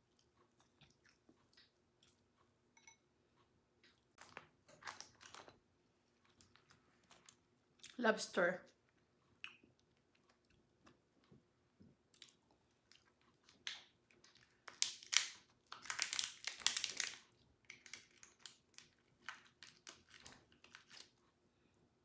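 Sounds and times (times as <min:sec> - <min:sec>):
lobster shell cracking: 0:13.6 - 0:21.0.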